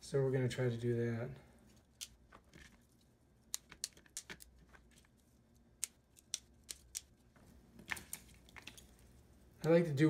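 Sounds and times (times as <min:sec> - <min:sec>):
asparagus snapping: 0:03.5 - 0:05.0, 0:05.8 - 0:07.2.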